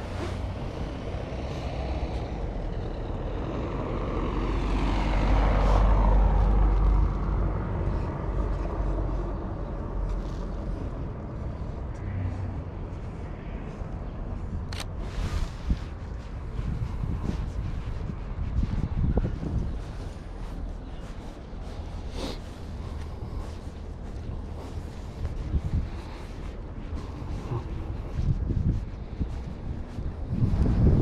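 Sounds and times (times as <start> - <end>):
motor vehicle passing by: 0.0 - 31.0.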